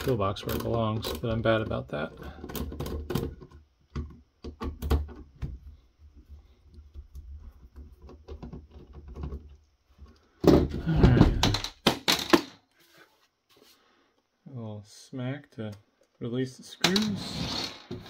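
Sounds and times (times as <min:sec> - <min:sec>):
plastic unit knocking and clattering: 0:00.4 - 0:05.6, 0:10.4 - 0:12.5.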